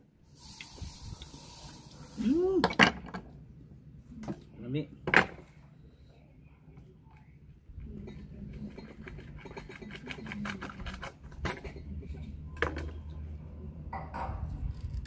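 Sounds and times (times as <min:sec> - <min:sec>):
knife scraping oyster shell: 0:08.6 - 0:11.8.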